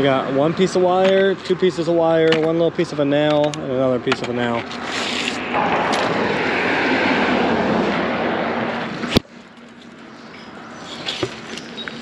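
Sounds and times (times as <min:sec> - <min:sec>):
vehicle passing by: 0:04.7 - 0:09.2.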